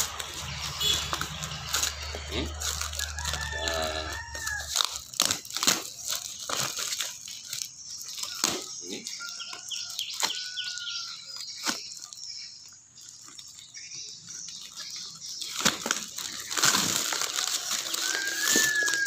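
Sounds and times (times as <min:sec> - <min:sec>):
paper and tape tearing: 0:00.0 - 0:10.6, 0:14.6 - 0:19.0.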